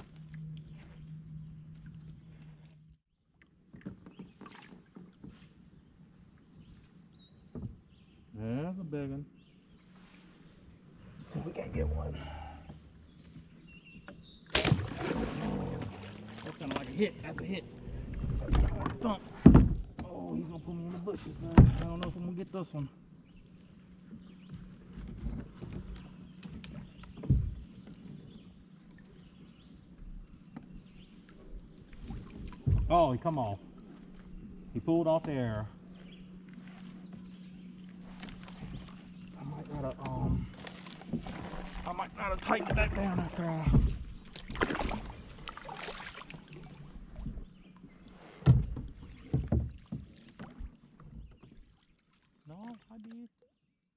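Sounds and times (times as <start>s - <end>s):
kayak paddling: 0.0s - 8.3s, 9.3s - 53.7s
small birds chirping: 3.3s - 11.8s, 12.5s - 14.5s, 20.1s - 45.0s, 50.9s - 53.7s.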